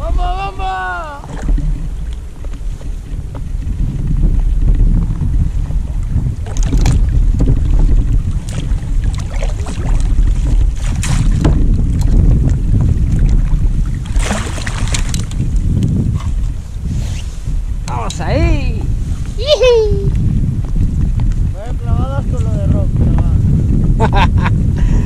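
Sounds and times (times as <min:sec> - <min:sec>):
water splashing: 0:00.0 - 0:03.7, 0:04.4 - 0:16.7
wind buffeting microphone: 0:00.0 - 0:25.0.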